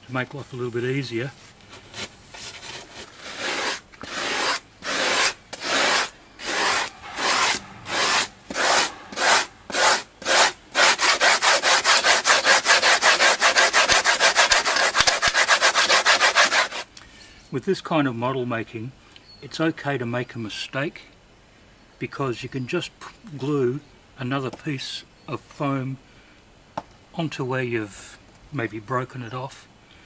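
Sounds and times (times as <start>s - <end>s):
blade sawing through foam: 1.8s - 16.8s.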